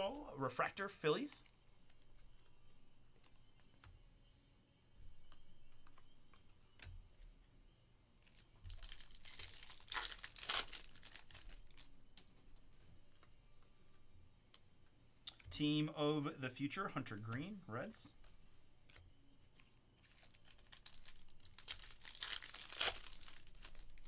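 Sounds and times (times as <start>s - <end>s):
foil wrapper tearing and crinkling: 8.7s - 11.9s, 20.1s - 24.0s.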